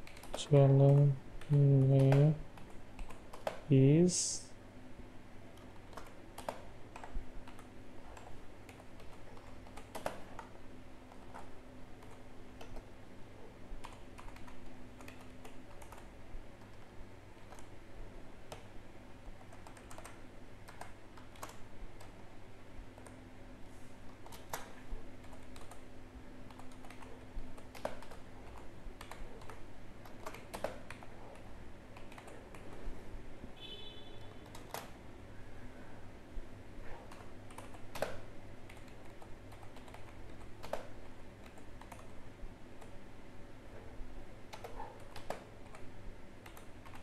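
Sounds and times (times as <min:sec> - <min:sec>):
typing on computer keyboard: 0:00.0 - 0:03.7, 0:05.5 - 0:10.5, 0:11.1 - 0:12.9, 0:13.8 - 0:17.7, 0:18.5 - 0:22.1, 0:24.1 - 0:32.9, 0:34.2 - 0:35.0, 0:37.1 - 0:42.2, 0:44.5 - 0:47.0
steady low hum: 0:00.0 - 0:47.0.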